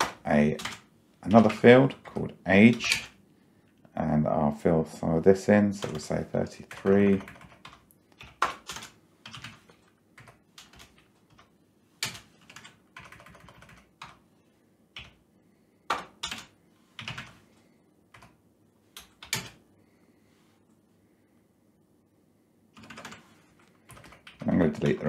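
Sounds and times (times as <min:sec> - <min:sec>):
keyboard typing: 0:00.0 - 0:03.2, 0:05.8 - 0:14.2, 0:15.9 - 0:17.4, 0:18.1 - 0:18.4, 0:19.0 - 0:19.6, 0:22.8 - 0:25.0.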